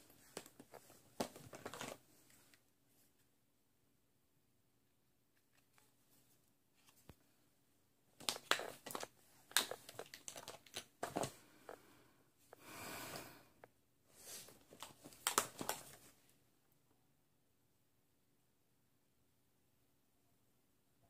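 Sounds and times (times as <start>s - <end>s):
makeup items rummaged through: 0.0s - 2.6s, 8.2s - 11.4s, 14.2s - 16.2s.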